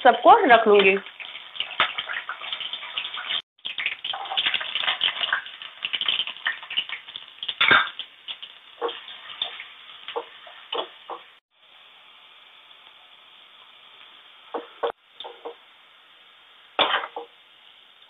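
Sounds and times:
carrot sizzling in oil: 0:00.0 - 0:18.0.

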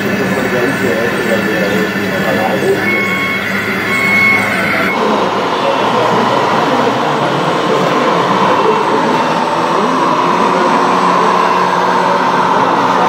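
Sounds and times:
background din: 0:00.0 - 0:06.3
low engine-like note: 0:00.0 - 0:13.0
model trucks mechanical whine: 0:00.0 - 0:13.0.

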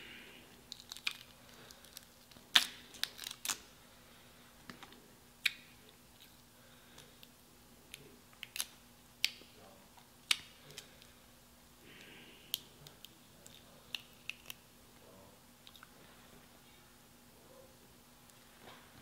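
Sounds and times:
crab shell cracking: 0:00.7 - 0:03.7, 0:13.4 - 0:14.6.

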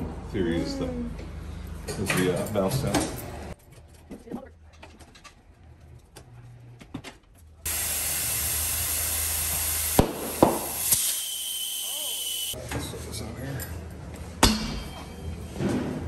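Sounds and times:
compressed air hissing into tire: 0:07.7 - 0:12.6.

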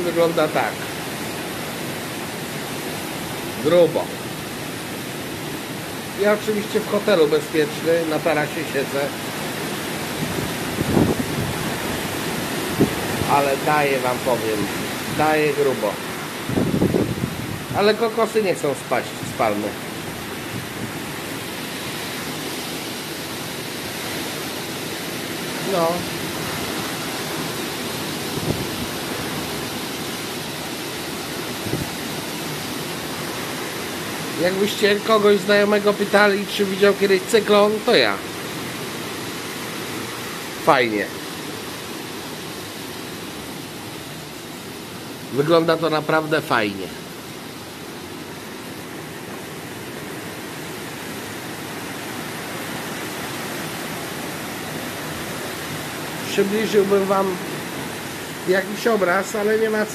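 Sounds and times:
strong wind: 0:00.0 - 0:36.3
heavy rain pouring: 0:00.0 - 0:59.9
wind rushing: 0:10.0 - 0:18.0, 0:25.7 - 0:30.2, 0:31.4 - 0:32.4.

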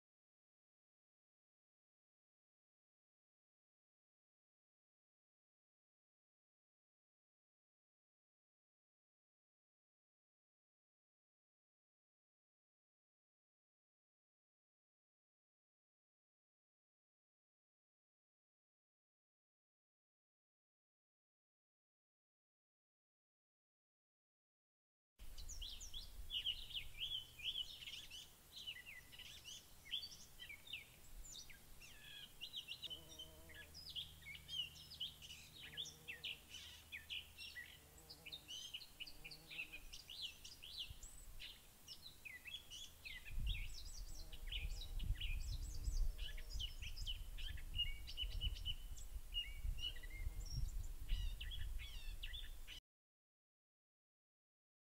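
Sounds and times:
chorus of songbirds: 0:25.2 - 0:52.8.

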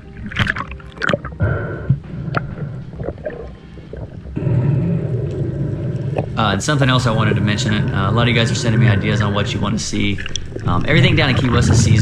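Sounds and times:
water splashing against camera: 0:00.0 - 0:01.4, 0:07.0 - 0:12.0
muffled underwater rumble: 0:00.0 - 0:12.0.

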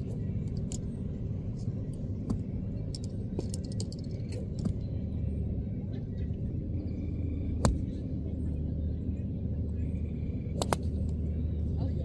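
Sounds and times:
low rumble: 0:00.0 - 0:12.0
golf club hitting ball: 0:10.6 - 0:10.9
faint golf swing clicks: 0:10.6 - 0:11.2.

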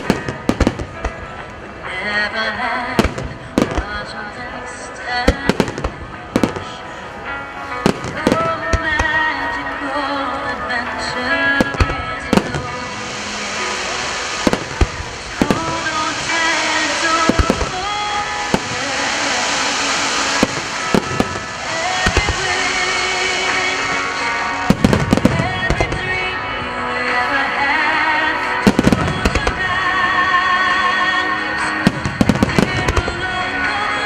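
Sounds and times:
music: 0:00.0 - 0:34.0
fireworks shells bursting: 0:11.6 - 0:26.1.

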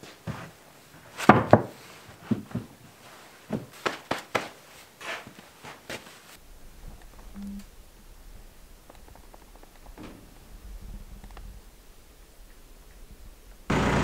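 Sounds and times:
footsteps: 0:00.0 - 0:07.7
wooden boards knocking together: 0:01.2 - 0:02.8.

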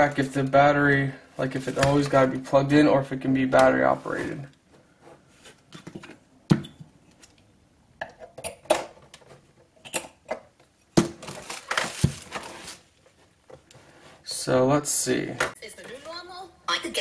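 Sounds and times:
plastic rustling scrape: 0:11.2 - 0:13.2.

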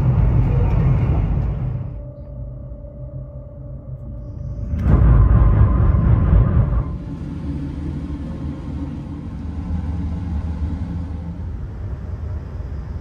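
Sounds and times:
train passing with rush of air: 0:00.0 - 0:02.0, 0:04.6 - 0:13.0
low rumble of train carriage: 0:00.0 - 0:13.0.

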